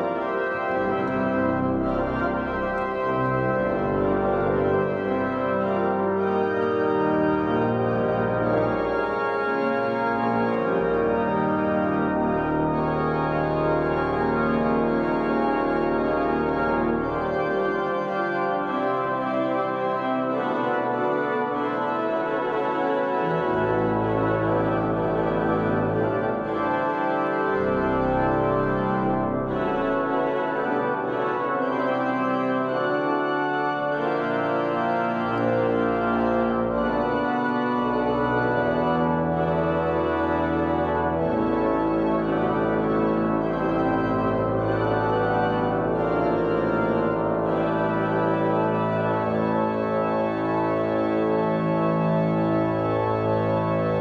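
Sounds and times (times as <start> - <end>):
pipe organ chords: 0.0 - 54.0.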